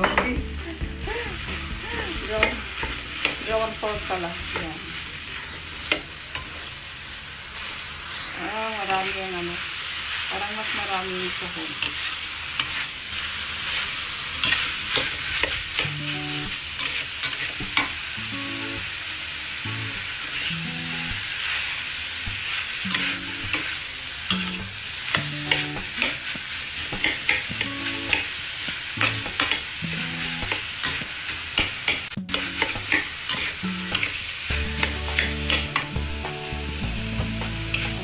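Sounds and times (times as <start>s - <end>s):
meat sizzling in a pan: 0.0s - 38.0s.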